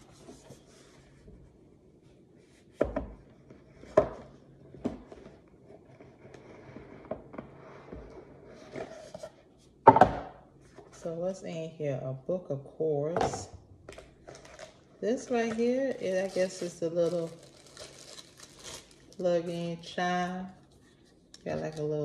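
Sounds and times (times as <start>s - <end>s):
box knocking on wooden table: 9.9s - 10.3s.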